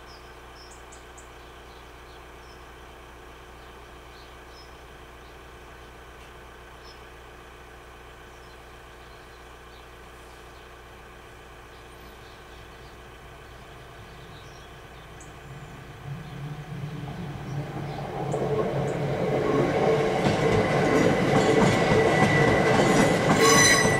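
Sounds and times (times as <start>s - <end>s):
train low rumble: 0.0s - 23.9s
car engine idling: 0.2s - 21.8s
faint bird chirps: 8.2s - 10.8s, 11.6s - 19.0s.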